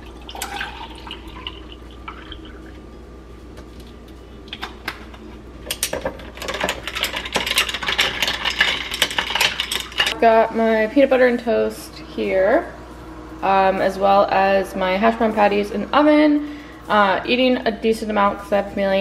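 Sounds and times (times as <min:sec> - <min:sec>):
coffee pouring over ice: 0:00.0 - 0:02.8
ice and straw clinking in glass: 0:06.0 - 0:10.2.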